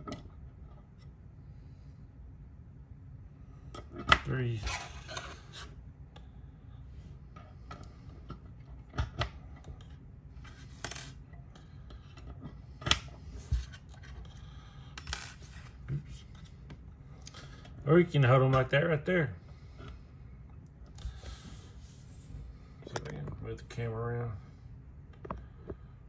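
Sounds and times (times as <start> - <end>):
hex keys clinking: 14.8 - 15.8.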